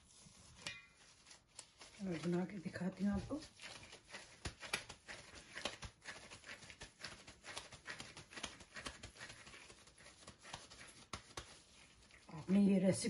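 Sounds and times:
hands patting meat mixture: 0:03.5 - 0:12.4.

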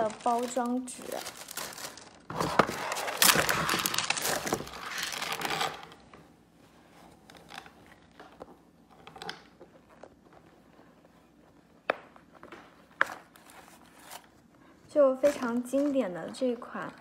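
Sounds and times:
wrapping paper crinkling: 0:00.0 - 0:06.0, 0:15.0 - 0:17.0.

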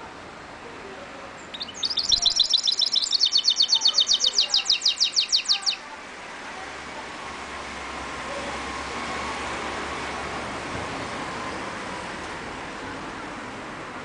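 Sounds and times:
songbird singing fast trill: 0:01.4 - 0:05.8.

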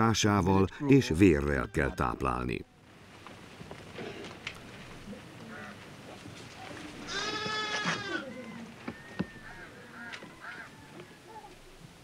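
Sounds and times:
goat bleating: 0:00.7 - 0:02.3, 0:07.0 - 0:10.6.

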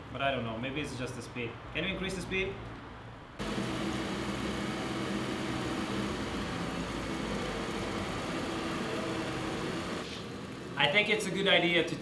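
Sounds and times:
treadmill belt running: 0:03.4 - 0:10.1
treadmill motor hum: 0:03.4 - 0:11.0.

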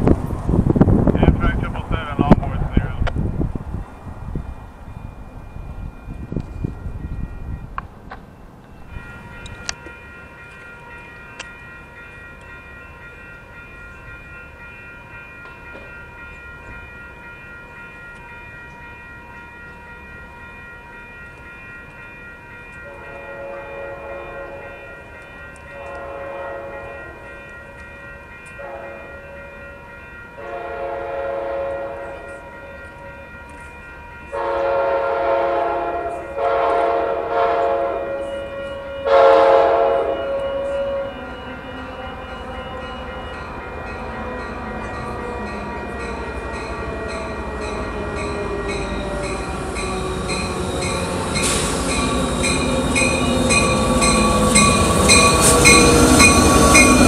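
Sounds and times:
train horn blasts: 0:22.8 - 0:25.0, 0:25.7 - 0:27.2, 0:28.6 - 0:29.6, 0:30.4 - 0:32.4, 0:34.3 - 0:43.3.

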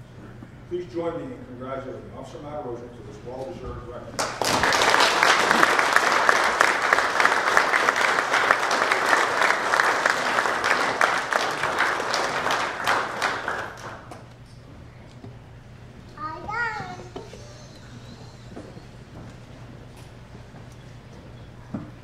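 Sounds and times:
audience applauding: 0:04.2 - 0:14.2.

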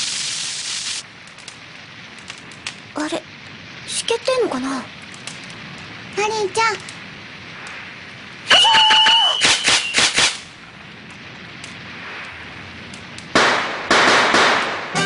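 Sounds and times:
firework shell crackling: 0:00.0 - 0:15.0
firework whistle: 0:08.4 - 0:10.4
sharp firework pops: 0:08.5 - 0:10.5, 0:11.1 - 0:15.0.

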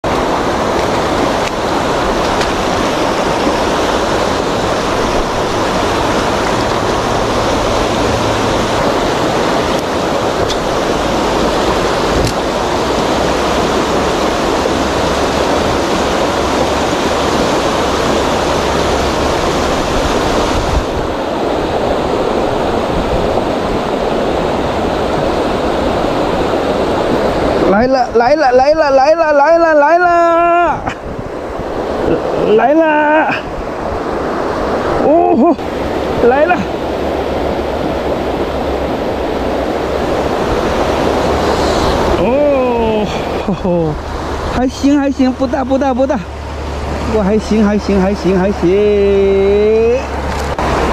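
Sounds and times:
river rapids rushing over rocks: 0:00.0 - 0:50.9.

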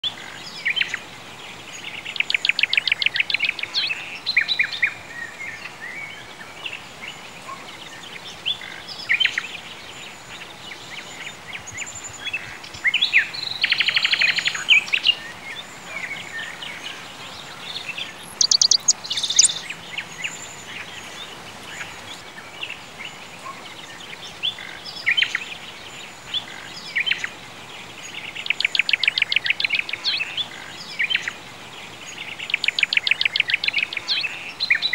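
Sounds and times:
songbirds chirping and singing: 0:00.0 - 0:34.9
faint hiss: 0:00.1 - 0:34.9
bird rapid trill: 0:18.3 - 0:19.7.

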